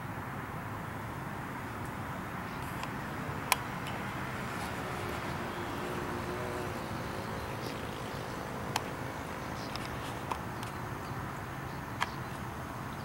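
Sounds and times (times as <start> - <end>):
faint distant motor hum: 0.0 - 13.0
sharp clicks: 2.6 - 4.1.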